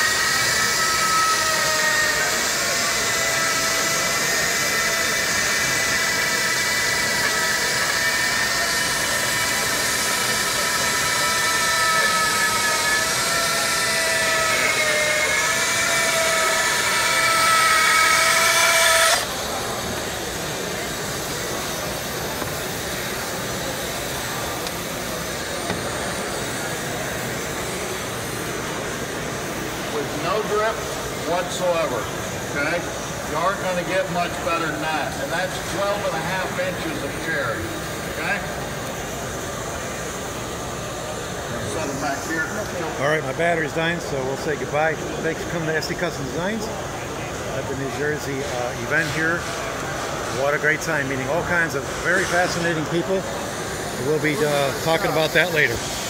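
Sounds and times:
bandsaw cutting wood: 0.0 - 27.7.

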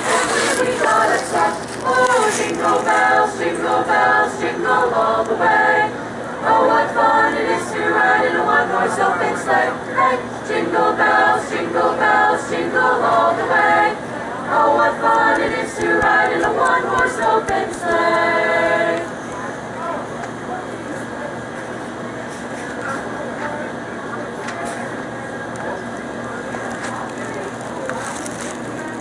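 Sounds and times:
choir singing a cappella: 0.0 - 19.2.

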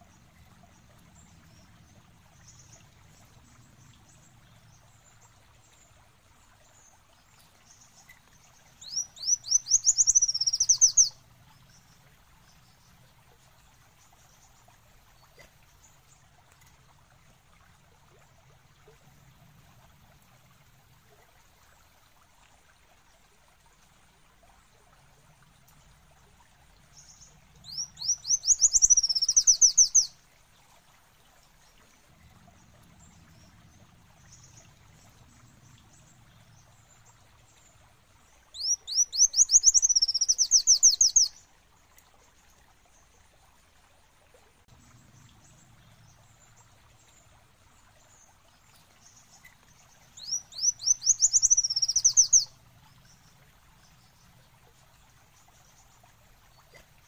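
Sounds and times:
sunbird singing: 8.8 - 11.2, 27.0 - 30.1, 38.6 - 41.4, 50.2 - 52.5.

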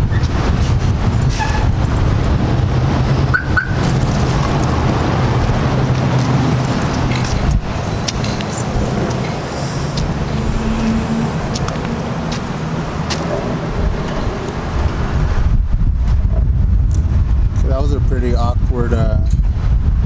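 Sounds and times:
car engine hum: 0.0 - 15.7
road rumble: 0.0 - 20.0.

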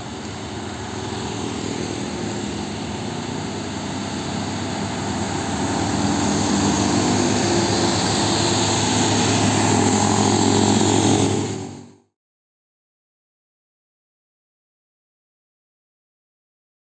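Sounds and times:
diesel truck engines passing: 0.0 - 12.1.

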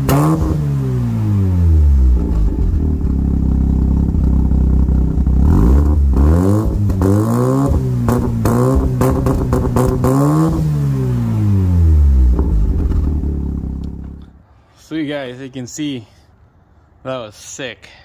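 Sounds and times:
rotary engine revving: 0.0 - 3.2, 4.4 - 14.3
sharp exhaust pops: 5.1 - 10.6, 12.2 - 14.4.

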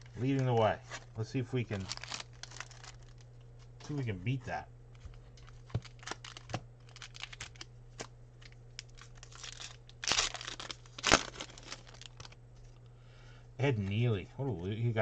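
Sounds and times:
wrapper crinkling and tearing: 1.7 - 3.2, 5.4 - 12.4.

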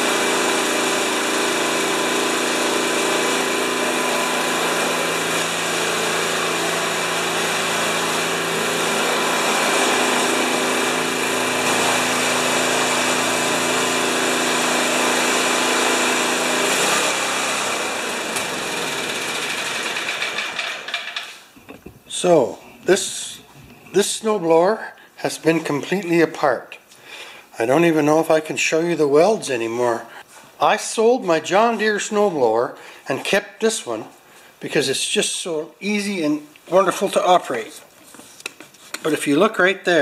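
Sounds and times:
snowblower engine running: 0.0 - 21.0.

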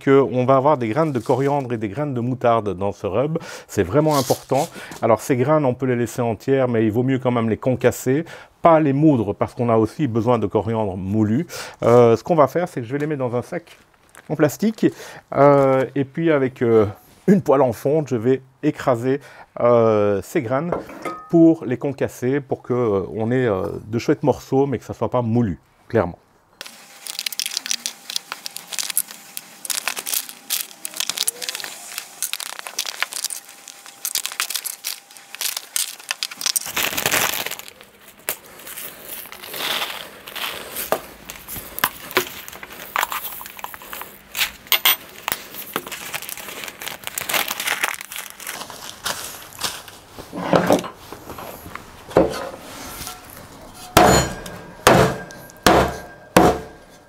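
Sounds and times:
seeds pouring and rattling: 26.6 - 37.8, 38.7 - 44.2, 45.5 - 48.9
plastic bag crinkling: 26.6 - 50.3
heavy pan thuds on wooden board: 53.9 - 56.8.

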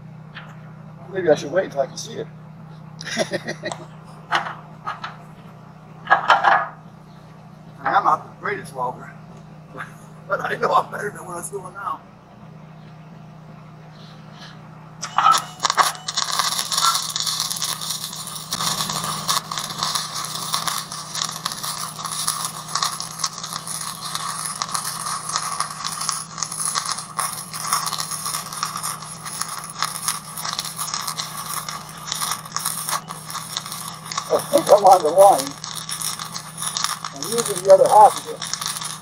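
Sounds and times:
low hum: 2.2 - 39.0
welding arc crackling: 3.0 - 5.2, 15.0 - 39.0.

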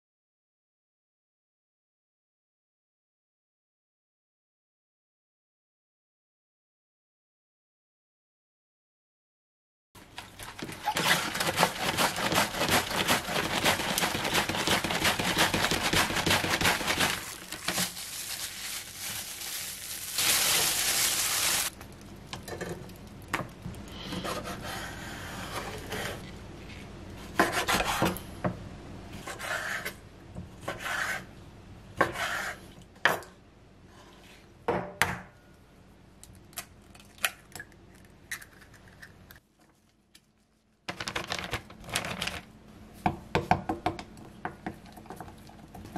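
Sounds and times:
cabbage shredding on mandoline: 10.7 - 21.7.

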